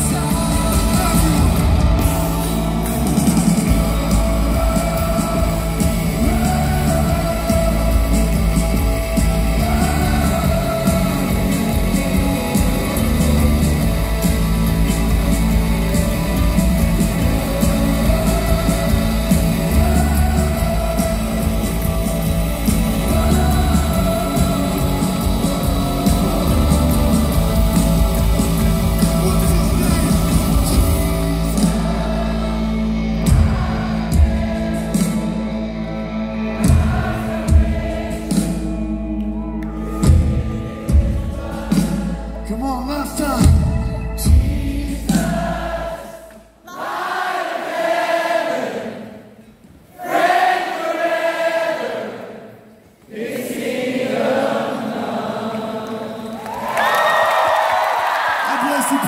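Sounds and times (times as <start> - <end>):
live band playing: 0.0 - 45.9
crowd singing: 0.0 - 59.0
drum hits: 33.2 - 35.6, 36.6 - 38.8.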